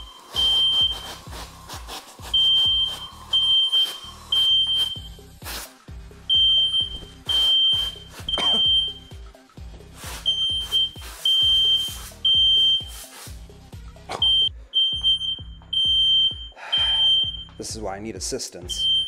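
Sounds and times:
music with low beat: 0:00.0 - 0:19.0
bursts of hiss: 0:04.2 - 0:05.9.

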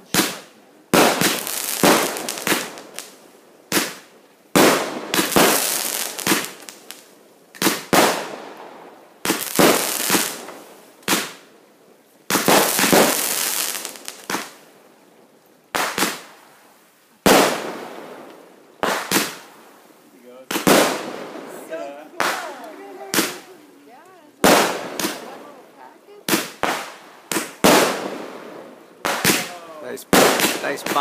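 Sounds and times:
fireworks bangs: 0:00.0 - 0:11.6, 0:12.3 - 0:14.7, 0:15.7 - 0:16.4, 0:17.2 - 0:31.0.

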